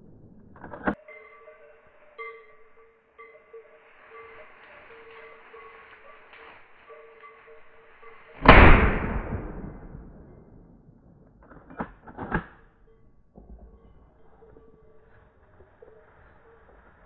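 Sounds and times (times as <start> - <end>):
rifle shot echoing: 8.4 - 11.2.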